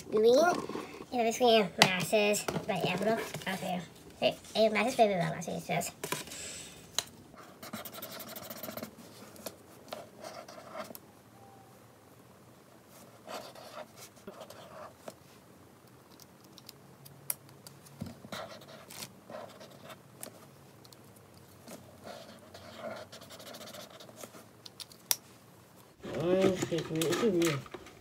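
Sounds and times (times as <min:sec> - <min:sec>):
pen scratching on paper: 0:07.4 - 0:09.2, 0:09.9 - 0:10.9, 0:13.0 - 0:15.0, 0:18.3 - 0:20.0, 0:22.0 - 0:24.4.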